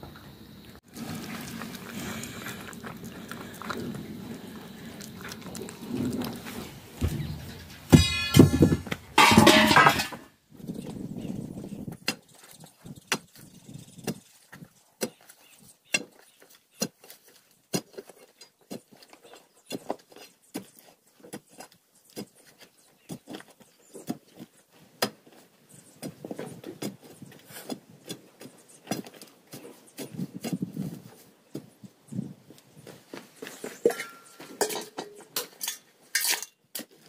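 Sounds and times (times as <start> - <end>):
metal scraping and clinking on stones: 1.0 - 10.3, 33.6 - 37.0
metal tool knocking into earth: 7.0 - 10.3.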